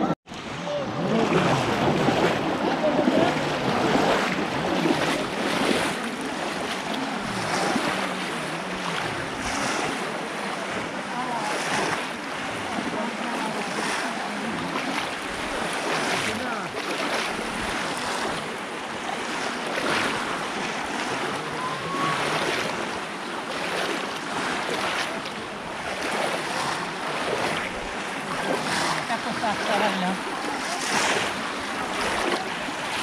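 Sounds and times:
water splashing as people wade: 0:00.0 - 0:33.0.

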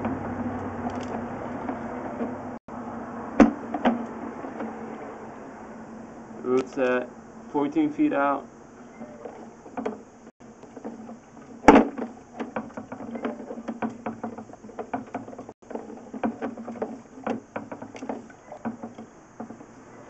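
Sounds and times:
cable clicking and knocking in a pipe: 0:09.1 - 0:19.9.

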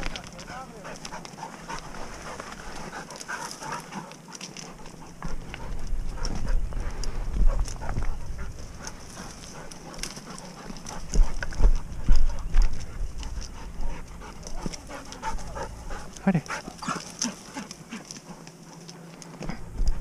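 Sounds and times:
footsteps on loose stone: 0:00.0 - 0:20.0
dog sounds: 0:00.2 - 0:20.0.

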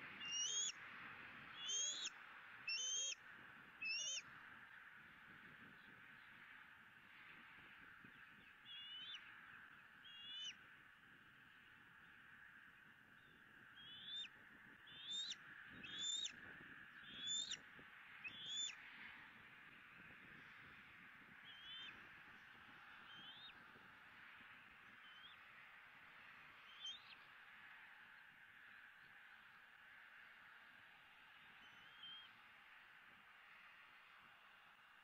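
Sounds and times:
eagle calling: 0:00.2 - 0:00.7, 0:01.6 - 0:02.1, 0:02.7 - 0:03.2, 0:03.8 - 0:04.2, 0:10.1 - 0:10.6, 0:13.8 - 0:14.3, 0:14.9 - 0:16.3, 0:17.0 - 0:17.6, 0:18.2 - 0:18.7.

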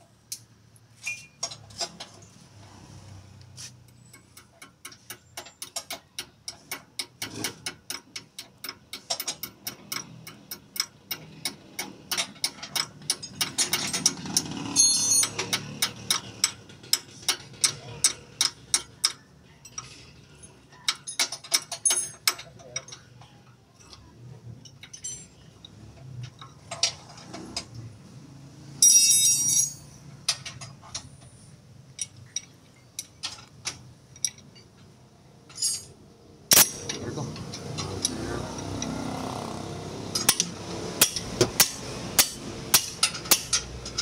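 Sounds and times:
ratchet wrench clicking: 0:03.9 - 0:20.0, 0:36.5 - 0:44.0.

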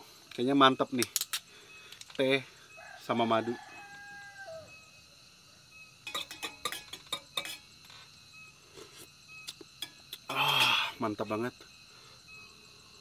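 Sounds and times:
spoon clinking in a cup: 0:06.0 - 0:07.7.

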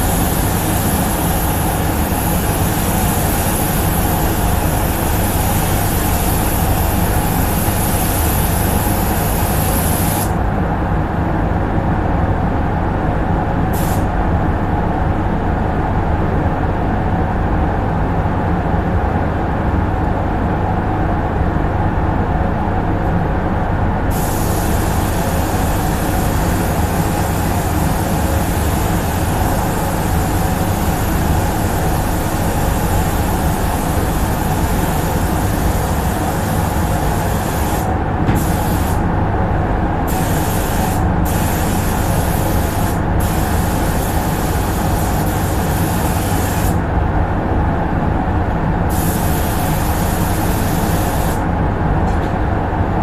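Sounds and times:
spray gun air hiss: 0:00.0 - 0:10.4, 0:13.7 - 0:14.1, 0:24.1 - 0:39.0, 0:40.1 - 0:46.8, 0:48.9 - 0:51.4
ventilation fans droning: 0:00.0 - 0:53.0.

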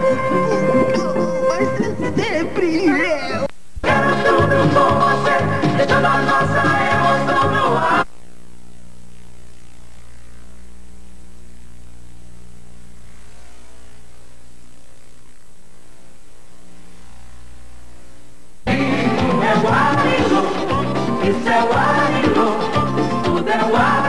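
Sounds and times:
electrical mains hum: 0:00.0 - 0:24.0
low tape hiss: 0:00.0 - 0:24.0
loud music: 0:18.7 - 0:24.0.

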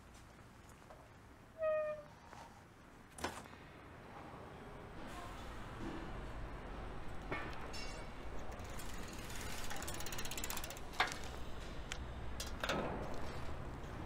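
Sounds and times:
bicycle freewheel ticking: 0:08.4 - 0:11.4
sharp clicks of bike: 0:08.4 - 0:13.5.

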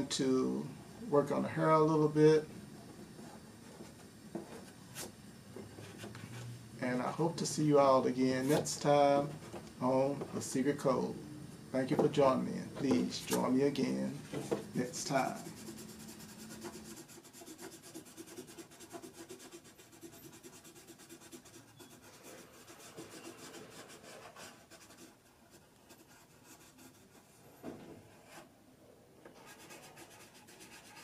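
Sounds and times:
pencil scratching on paper: 0:14.8 - 0:27.4, 0:29.4 - 0:31.0.

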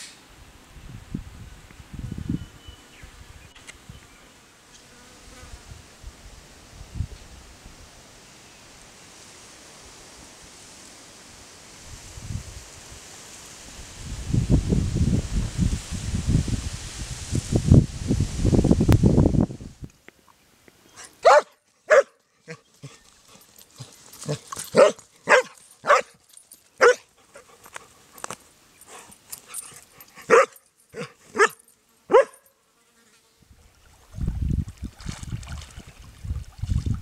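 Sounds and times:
dog barking: 0:21.0 - 0:22.6, 0:24.3 - 0:26.2, 0:26.8 - 0:27.1, 0:30.2 - 0:32.5.

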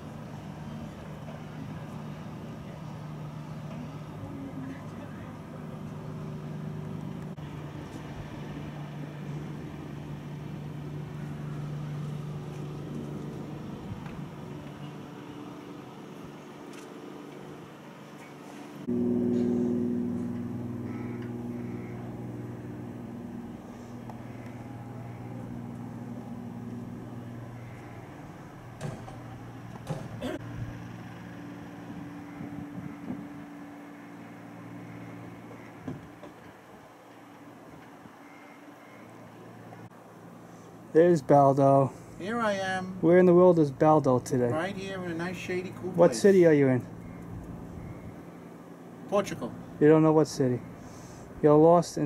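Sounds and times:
mechanical hum: 0:00.0 - 0:41.0.

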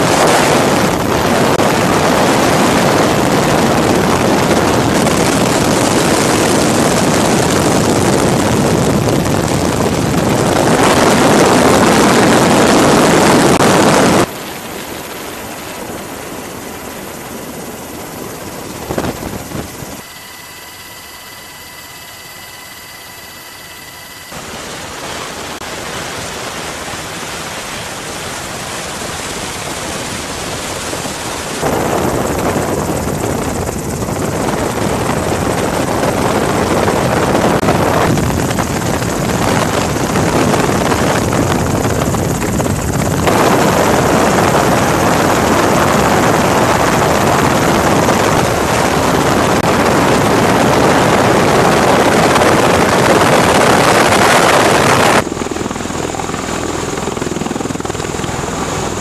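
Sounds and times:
helicopter rotor noise: 0:00.0 - 0:59.0
tiltrotor aircraft rotors droning: 0:00.0 - 0:59.0
wind: 0:00.0 - 0:59.0.

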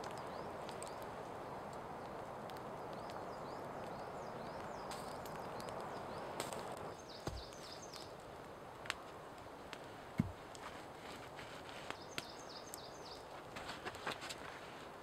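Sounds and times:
small birds chirping: 0:00.0 - 0:08.4, 0:11.6 - 0:13.5
fire crackling: 0:00.0 - 0:15.0
log thump: 0:07.2 - 0:07.5, 0:10.2 - 0:10.4.

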